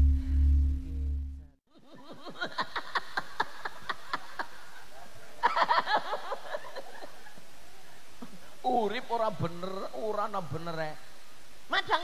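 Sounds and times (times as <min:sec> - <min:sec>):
man laughing into microphone: 0:01.8 - 0:07.6.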